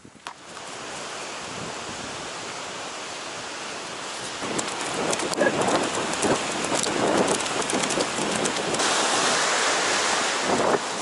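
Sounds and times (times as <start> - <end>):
wind: 0.0 - 11.0
surf rushing: 0.5 - 11.0
horse splashing through surf: 0.6 - 11.0.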